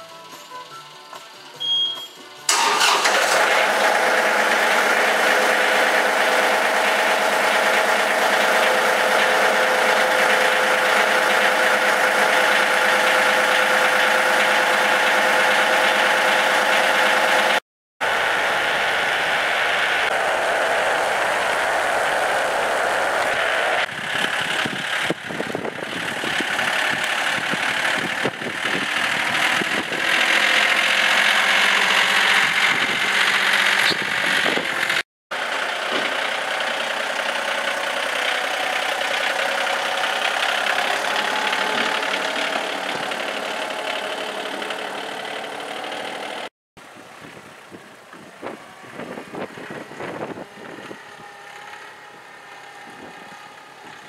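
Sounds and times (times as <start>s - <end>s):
tractor diesel engine running: 0.0s - 54.0s
hiss and rushing noise: 18.0s - 25.0s.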